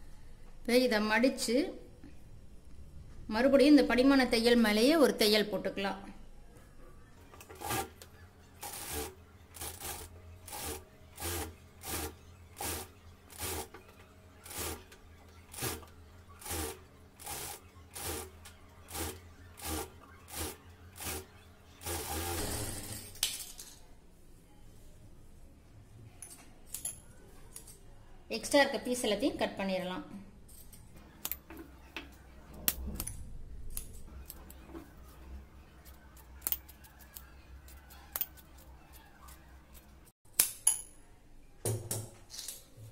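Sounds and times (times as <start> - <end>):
sewing machine stitching: 7.3 - 8.0, 8.6 - 23.1.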